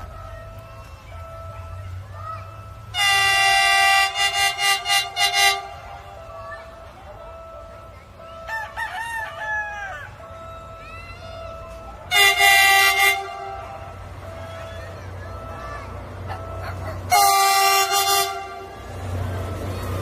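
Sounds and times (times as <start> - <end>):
locomotive horn: 2.8 - 10.8, 11.4 - 14.6, 15.4 - 20.0
rooster crowing: 8.5 - 10.1.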